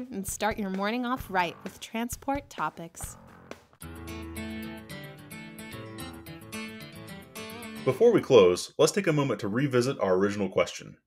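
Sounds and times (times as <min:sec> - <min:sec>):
background music with guitar: 0:00.5 - 0:08.6.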